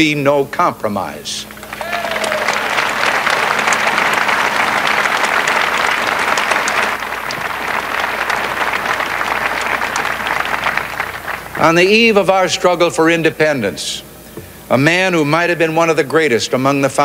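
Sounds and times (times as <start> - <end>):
crowd applauding: 1.5 - 12.0.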